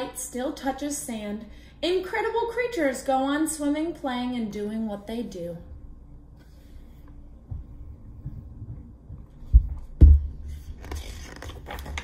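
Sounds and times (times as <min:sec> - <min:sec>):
book thumping and knocking: 0:09.5 - 0:10.5
pages flipping: 0:10.4 - 0:12.0.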